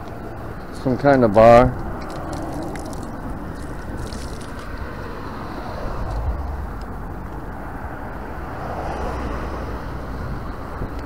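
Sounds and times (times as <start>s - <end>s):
road traffic rumble: 0.0s - 11.0s
vehicle passing: 1.2s - 11.0s.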